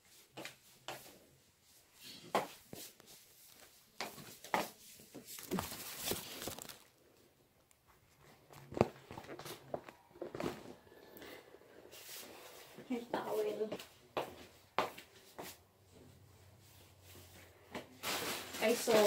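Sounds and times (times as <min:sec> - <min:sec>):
rustling: 0:02.7 - 0:11.0, 0:15.3 - 0:19.0.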